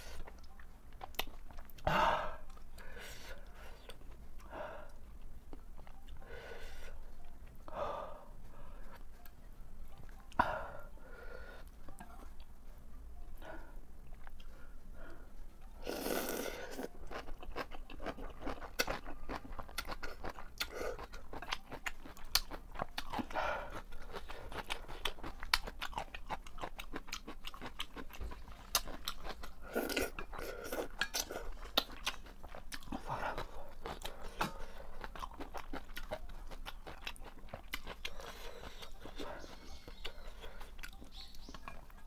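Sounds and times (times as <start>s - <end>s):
wet chewing and crunching: 0.1s - 2.9s, 15.9s - 42.0s.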